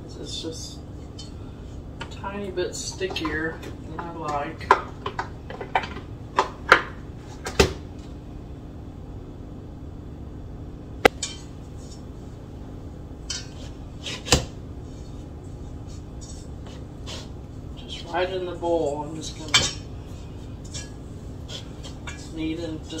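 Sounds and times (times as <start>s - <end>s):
dough scraping in metal bowl: 13.3s - 23.0s
metal mixer bowl clanking: 20.6s - 23.0s.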